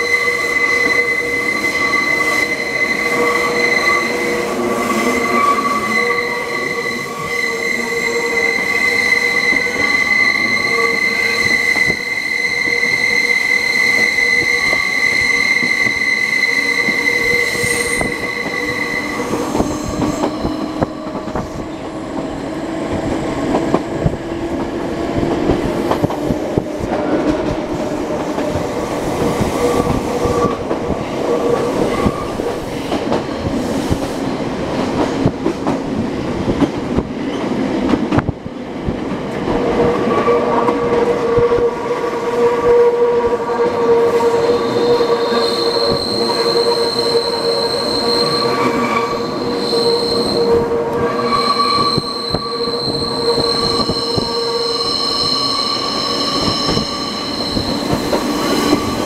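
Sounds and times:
train wheel squeal: 0.0s - 21.9s, 28.2s - 30.8s, 31.5s - 34.4s, 42.4s - 59.0s.

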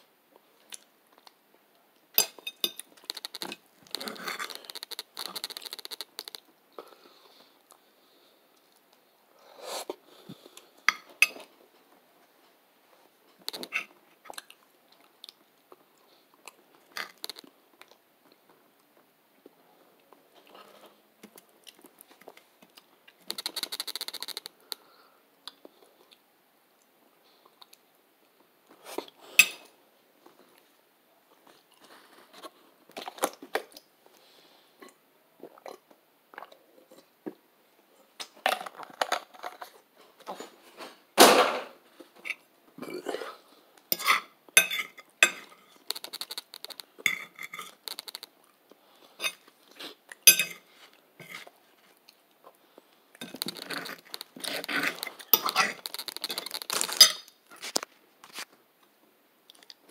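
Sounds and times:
biting and chewing food: 53.2s - 58.4s.

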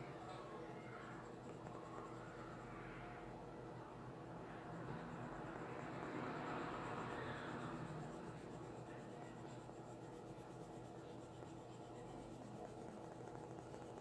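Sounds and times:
pencil scratching on paper: 7.6s - 14.0s.

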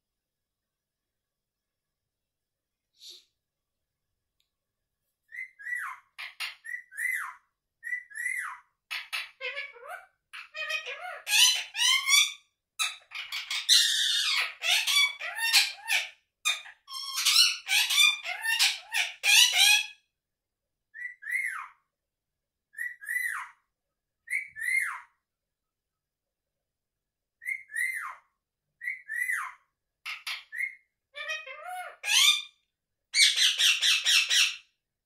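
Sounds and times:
parakeet chattering and squawking: 5.4s - 20.0s, 27.4s - 32.6s, 33.2s - 34.7s
parakeet chirps: 27.4s - 32.6s, 33.2s - 34.6s.

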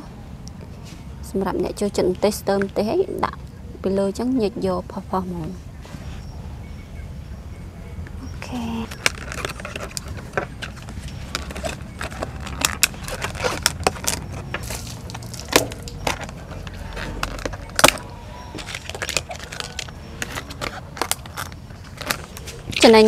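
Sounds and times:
plastic containers clicking and tapping: 8.9s - 18.0s.

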